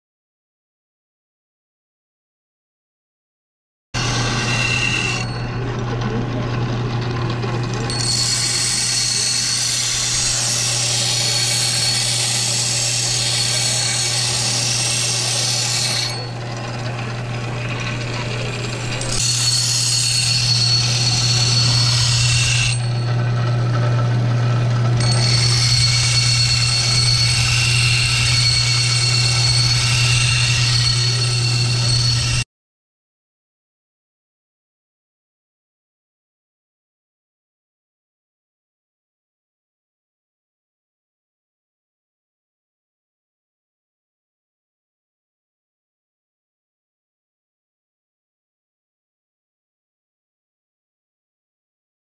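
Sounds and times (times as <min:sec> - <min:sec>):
belt sharpener motor humming: 0:04.0 - 0:32.4
blade grinding against belt: 0:04.0 - 0:32.4.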